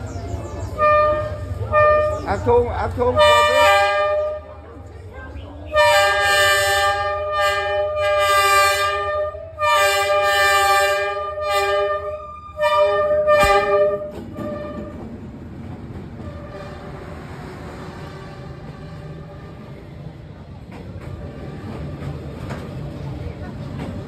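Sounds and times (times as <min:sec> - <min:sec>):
train passing rumble: 0:00.0 - 0:24.0
diesel locomotive horn blasts: 0:00.7 - 0:04.6, 0:05.7 - 0:15.1.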